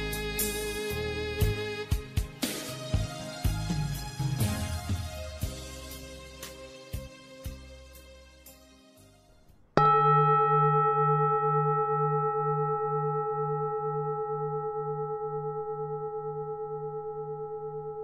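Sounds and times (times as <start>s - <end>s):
singing bowl ringing: 9.8s - 18.0s.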